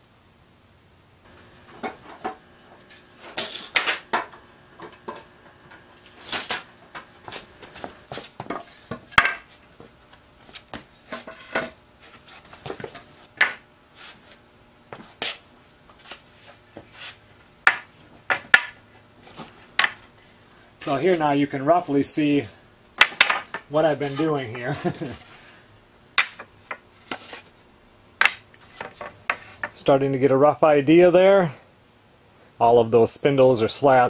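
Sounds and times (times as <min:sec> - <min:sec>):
wooden boards knocking on concrete: 0:08.1 - 0:09.5, 0:12.7 - 0:13.6, 0:17.6 - 0:18.8, 0:19.8 - 0:20.0, 0:23.0 - 0:23.6, 0:26.2 - 0:26.8.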